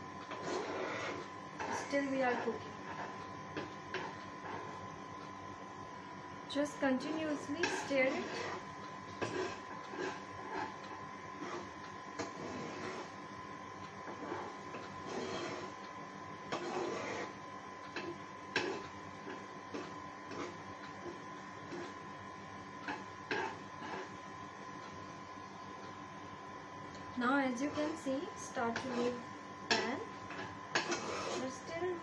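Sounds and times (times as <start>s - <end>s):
steady high hum: 0.0s - 32.0s
spoon scraping a metal pan: 0.3s - 3.2s, 7.0s - 8.6s, 9.2s - 10.8s, 11.4s - 13.2s, 14.1s - 15.7s, 16.5s - 17.4s, 18.0s - 18.9s, 28.7s - 31.7s.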